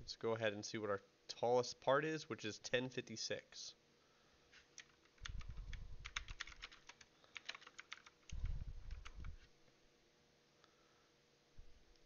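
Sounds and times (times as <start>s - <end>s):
keyboard keystrokes: 4.8s - 9.4s.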